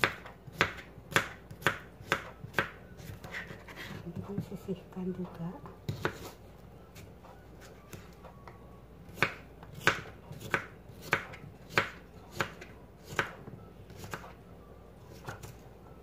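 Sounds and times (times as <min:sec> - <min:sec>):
knife slicing cucumber: 0:05.9 - 0:06.4, 0:09.1 - 0:14.3.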